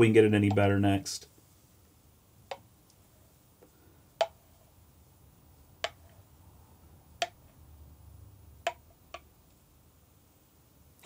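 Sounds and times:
sharp taps: 8.6s - 9.3s.

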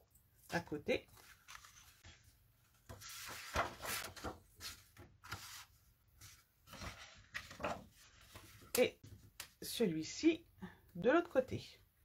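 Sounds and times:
paper rustling: 1.1s - 9.3s.

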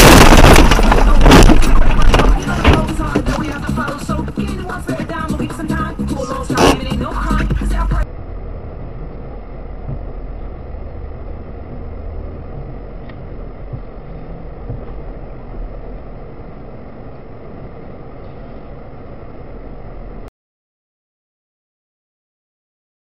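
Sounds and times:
vehicle engine and traffic rumble: 0.0s - 20.3s
loud music: 2.4s - 8.0s.

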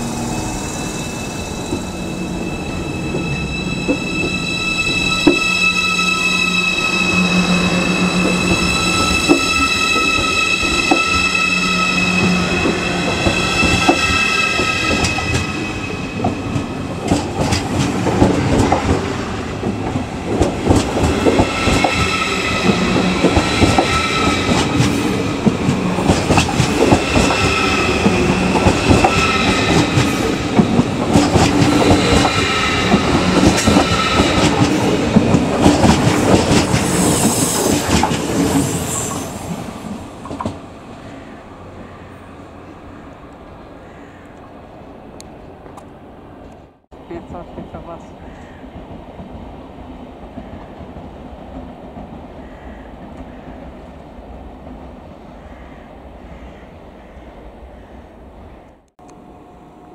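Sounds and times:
high whining squealing tones: 0.0s - 19.5s, 20.8s - 39.6s
train wheels clicking over rail joints: 19.6s - 38.6s.

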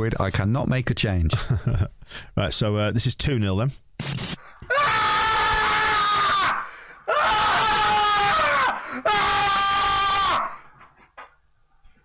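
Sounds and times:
man screaming: 4.7s - 10.7s.

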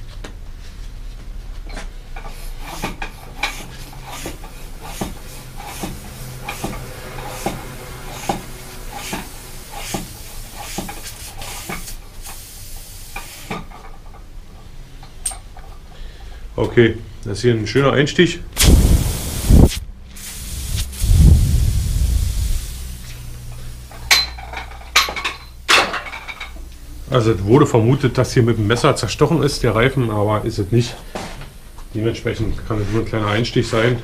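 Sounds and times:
hand pump strokes with rushing air: 2.2s - 13.6s, 18.6s - 23.2s.

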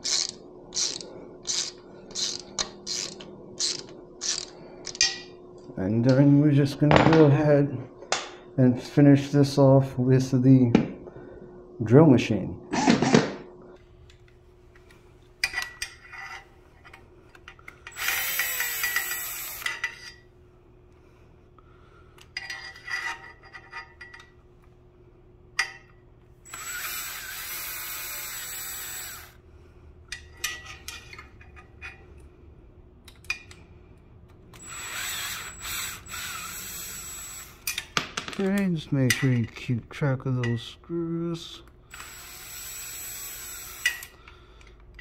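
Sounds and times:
power drill running: 17.9s - 19.7s, 26.4s - 29.4s, 34.6s - 37.7s, 41.9s - 44.2s
drill clicks: 17.9s - 19.8s, 26.5s - 29.4s, 34.5s - 37.9s, 41.9s - 44.8s.

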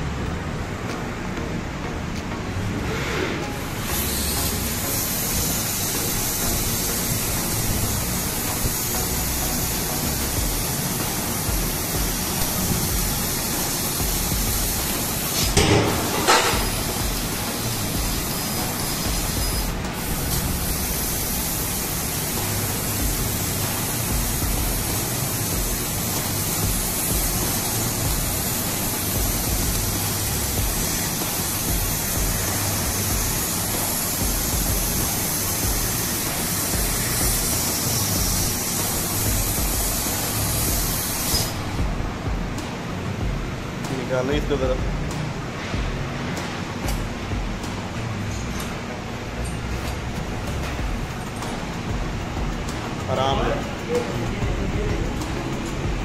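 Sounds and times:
laser cutter gas jet hissing: 2.8s - 42.2s.

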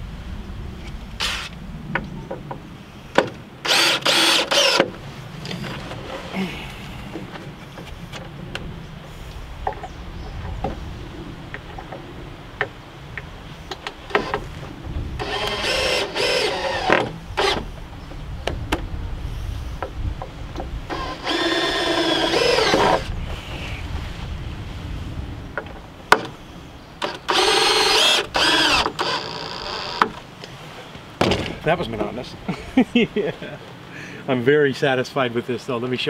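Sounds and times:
lumber and tool handling knocks: 3.2s - 3.4s, 25.6s - 26.4s, 30.0s - 30.2s, 31.2s - 31.6s
cordless drill driving screws: 3.6s - 4.9s, 15.2s - 17.7s, 20.9s - 23.1s, 27.0s - 30.2s.

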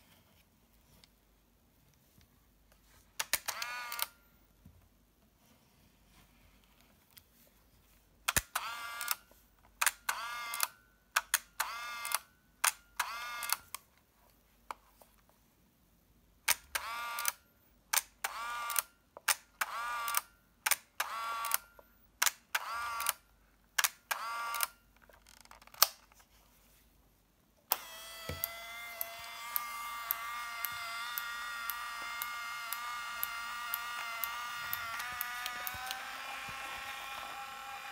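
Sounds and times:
camera winding motor whir: 3.2s - 4.2s, 8.4s - 9.2s, 10.0s - 10.8s, 11.6s - 12.3s, 13.0s - 13.7s, 16.7s - 17.4s, 19.6s - 20.2s, 21.0s - 21.7s, 22.5s - 23.2s, 24.1s - 24.8s, 27.7s - 37.9s.

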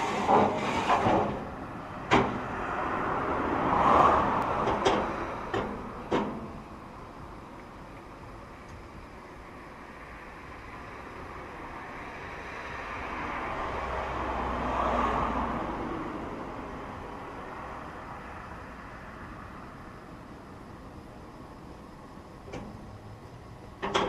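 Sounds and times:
vehicle driving past: 0.0s - 6.0s, 12.3s - 18.5s
traffic background: 0.0s - 24.0s.

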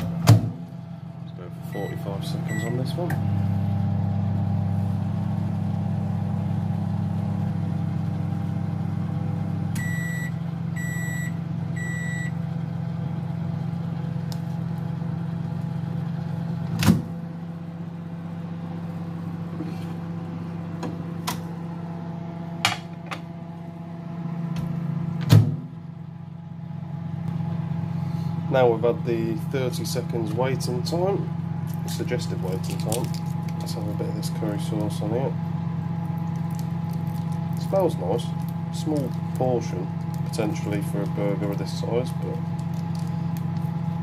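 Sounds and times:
fan hum: 0.0s - 44.0s
microwave oven humming: 0.0s - 44.0s
microwave beeps: 1.6s - 3.2s, 9.7s - 12.6s.

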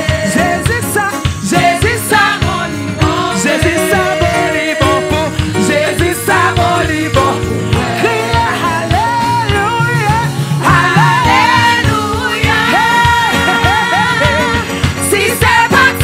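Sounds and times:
backing music with drums and bass: 0.0s - 16.0s
woman singing into microphone: 10.6s - 16.0s.

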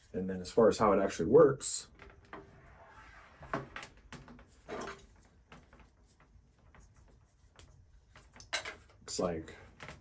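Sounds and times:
light knocks and rubs of plastic: 3.4s - 10.0s.

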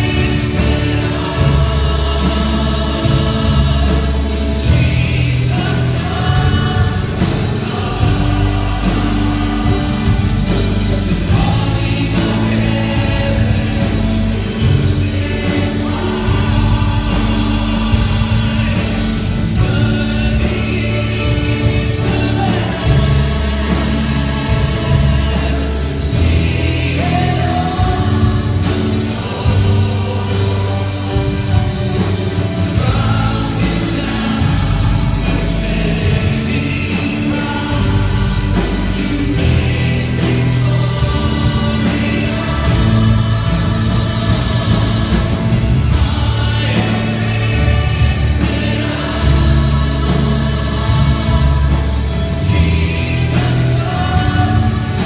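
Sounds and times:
choir singing: 0.0s - 55.0s
piano: 0.0s - 55.0s
man singing into a microphone: 10.8s - 31.6s, 32.4s - 55.0s.

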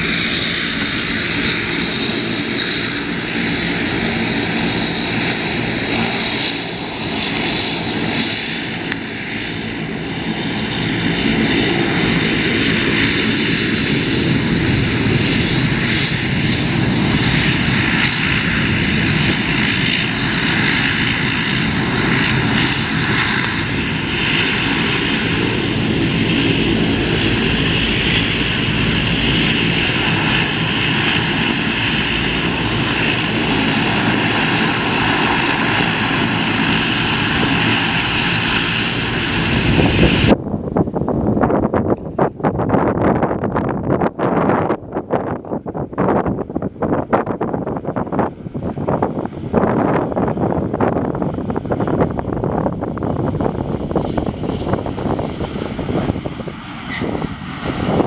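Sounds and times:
airplane engines roaring: 0.0s - 58.0s.

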